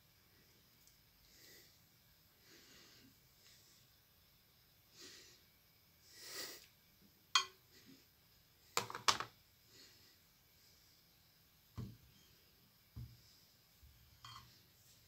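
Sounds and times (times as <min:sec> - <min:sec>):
soft breathy hisses: 0:00.2 - 0:04.1, 0:04.8 - 0:06.9, 0:09.6 - 0:11.4.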